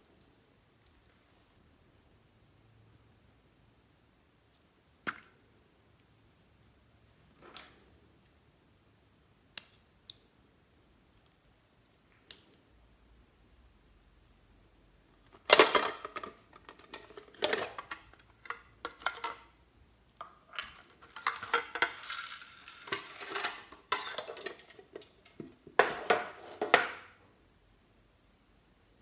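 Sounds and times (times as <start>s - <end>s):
metal tin sharp clack: 20.6s - 25.1s.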